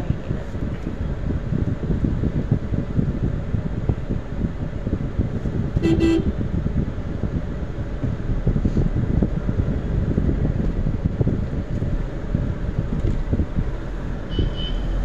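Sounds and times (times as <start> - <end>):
steady low rumble: 0.0 - 15.0
vehicle horn toots: 5.8 - 6.3, 14.3 - 15.0.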